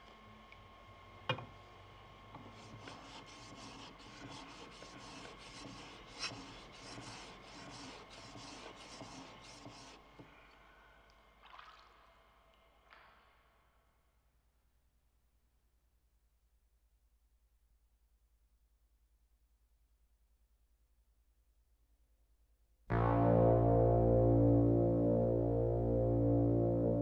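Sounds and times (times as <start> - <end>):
blade scraping on whetstone: 2.7 - 9.9.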